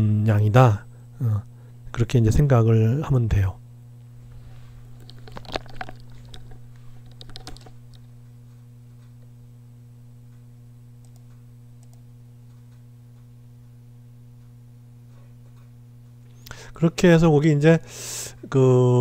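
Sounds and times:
low electrical hum: 0:00.0 - 0:19.0
computer clicks and taps: 0:05.0 - 0:08.0, 0:11.0 - 0:12.0.

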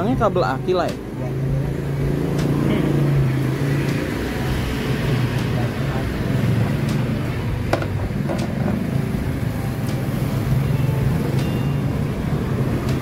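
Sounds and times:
low engine hum: 0:00.0 - 0:13.0.

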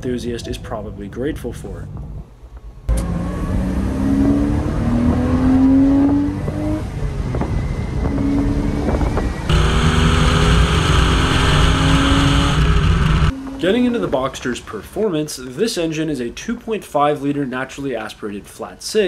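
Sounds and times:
car engine accelerating: 0:02.9 - 0:13.5
wind noise: 0:04.2 - 0:13.3.

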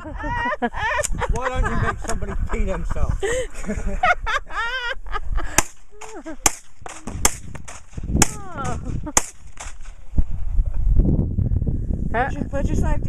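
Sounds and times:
gunshots: 0:05.6 - 0:09.8.

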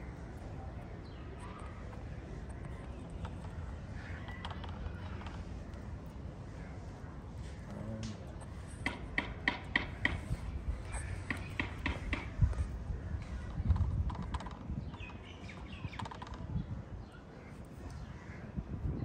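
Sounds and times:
low outdoor background hum: 0:00.0 - 0:19.0
scattered knocks: 0:08.7 - 0:10.4, 0:11.2 - 0:12.4
sharp taps: 0:08.8 - 0:10.4, 0:11.1 - 0:12.4.

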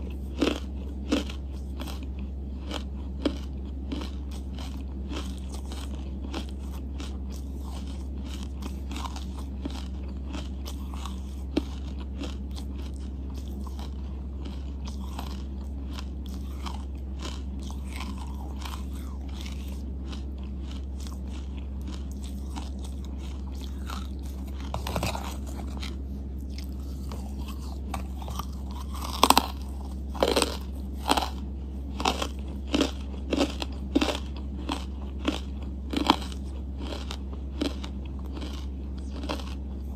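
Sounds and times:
chewing charcoal: 0:00.0 - 0:39.9
loud sharp crunches: 0:00.0 - 0:39.9
steady low hum: 0:00.0 - 0:39.9.

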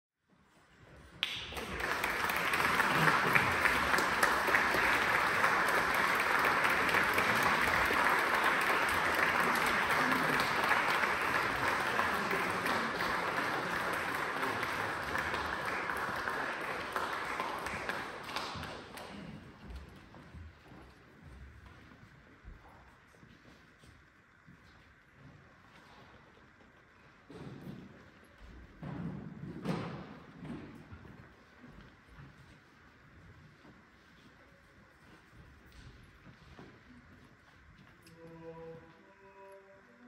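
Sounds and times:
audience applauding: 0:01.2 - 0:19.8.

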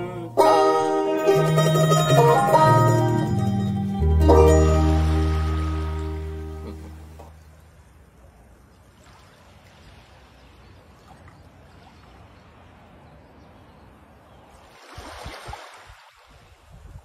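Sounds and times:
sea waves washing on shore: 0:04.8 - 0:13.4, 0:14.0 - 0:17.0.

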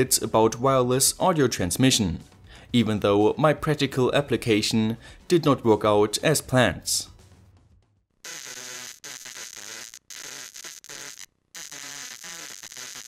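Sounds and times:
radio static hiss and buzz: 0:08.3 - 0:13.0.

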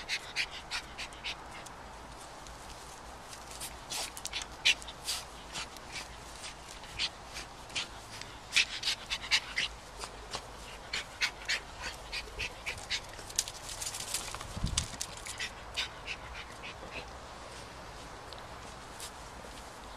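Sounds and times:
small dog panting: 0:00.0 - 0:01.8, 0:03.5 - 0:13.9, 0:15.1 - 0:17.8.

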